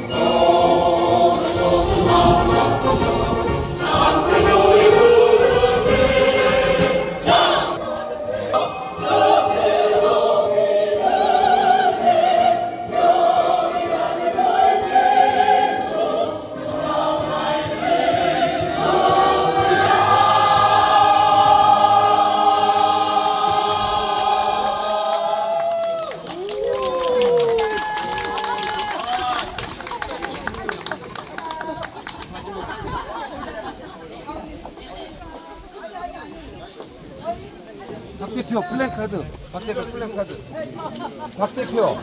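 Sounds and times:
choir singing: 0:00.0 - 0:25.5.

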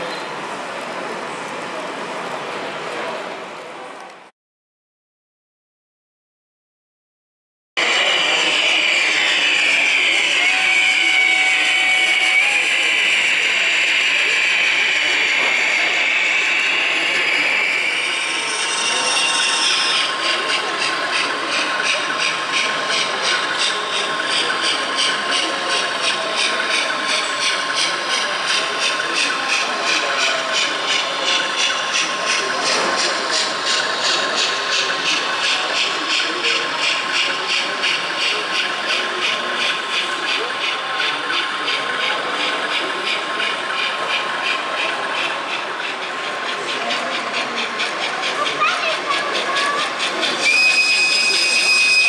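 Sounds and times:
high whine: 0:07.8 - 0:22.3
model steam locomotive chuffing: 0:07.8 - 0:52.0.

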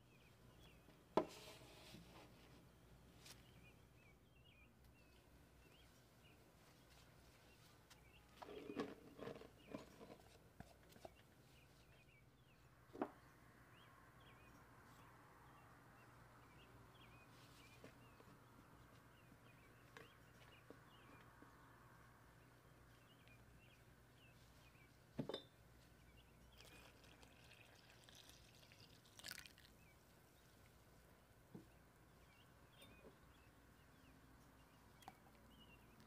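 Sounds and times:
milk pouring into bowl: 0:26.6 - 0:29.8.

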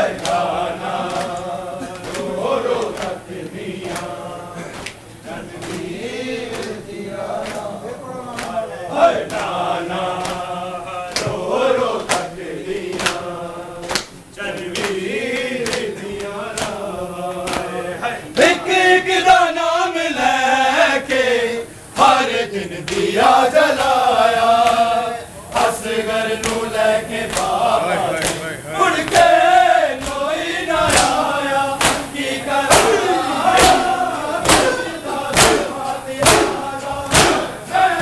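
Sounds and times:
men chanting a lament: 0:00.0 - 0:38.0
hands slapping chests: 0:01.0 - 0:03.2, 0:04.7 - 0:05.0, 0:15.6 - 0:16.8, 0:30.0 - 0:30.2, 0:30.9 - 0:31.2, 0:31.8 - 0:32.1, 0:32.7 - 0:37.5.

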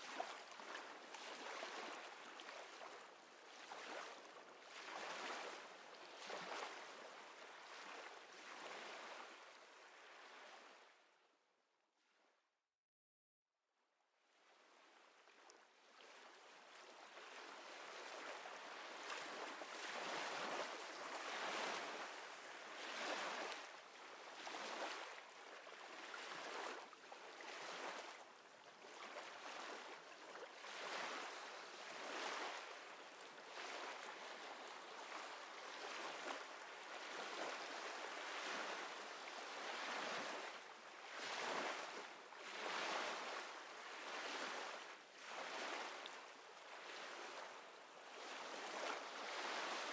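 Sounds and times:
gentle ocean surf: 0:00.0 - 0:11.0, 0:14.6 - 0:49.9.

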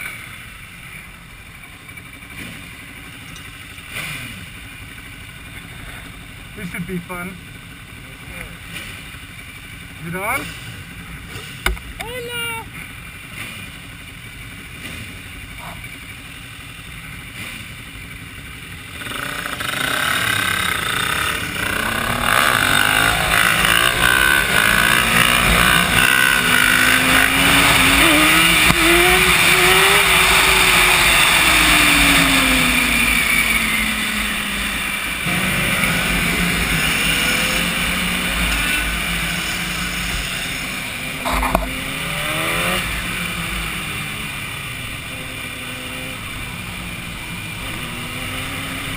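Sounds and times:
motorcycle engines idling: 0:00.0 - 0:48.9
motorcycle accelerating away: 0:03.8 - 0:04.6, 0:18.8 - 0:48.9.

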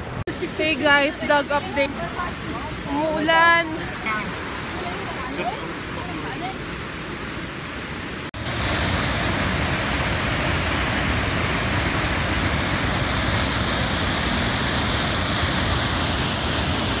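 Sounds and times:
waterfall rushing: 0:00.0 - 0:17.0.

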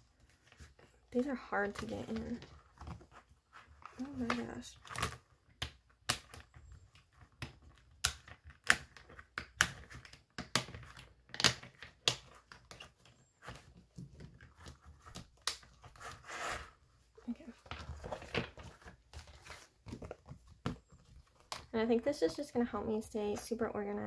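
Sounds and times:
paper rustling: 0:11.6 - 0:22.4.

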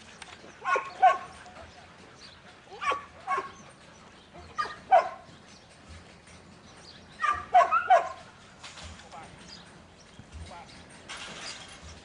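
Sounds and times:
dog barking: 0:00.6 - 0:01.3, 0:02.8 - 0:03.6, 0:04.6 - 0:05.2, 0:07.2 - 0:08.2.

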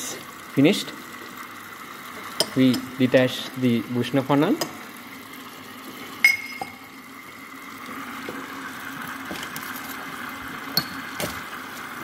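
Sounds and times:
vacuum suction hum and hiss: 0:00.0 - 0:12.0
glass clink with ring: 0:06.2 - 0:06.8.

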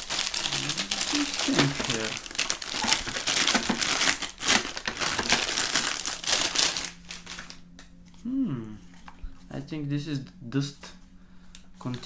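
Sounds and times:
plastic bag crinkling: 0:00.0 - 0:07.7.

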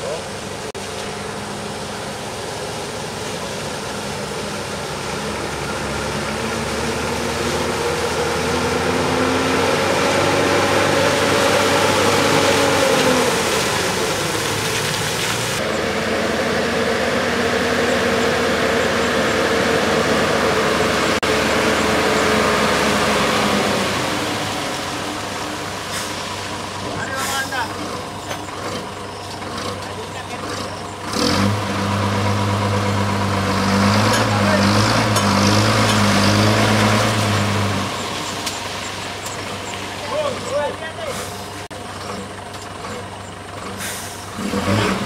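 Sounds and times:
truck diesel engine driving by: 0:00.0 - 0:45.0.

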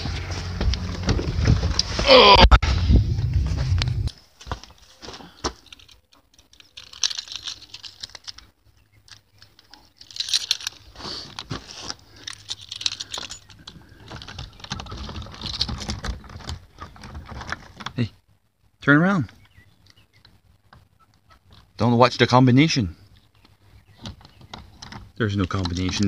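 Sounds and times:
footsteps crunching on rough ground: 0:00.0 - 0:05.6
phone handling clicks and rustling: 0:23.3 - 0:26.0.

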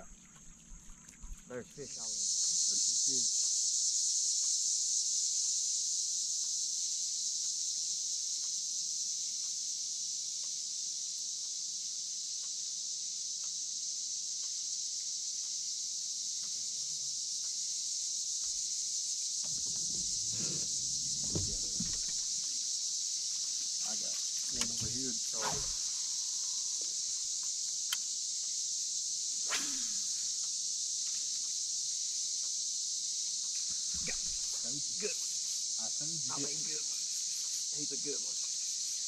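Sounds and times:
insects chorus: 0:00.0 - 0:39.0.

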